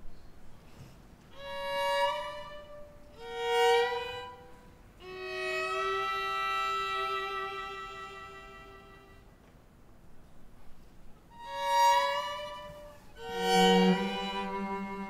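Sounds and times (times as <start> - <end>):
string quartet bowed chords: 1.3 - 9.4, 11.3 - 15.0.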